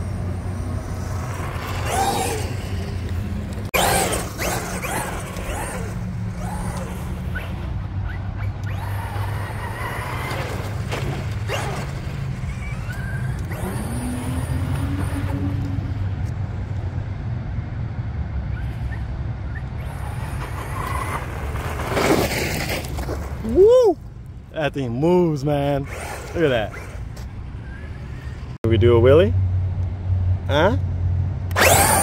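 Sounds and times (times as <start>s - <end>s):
electric toy truck motor whining: 0.3s - 7.6s, 8.4s - 15.6s, 25.9s - 28.4s, 31.5s - 32.0s.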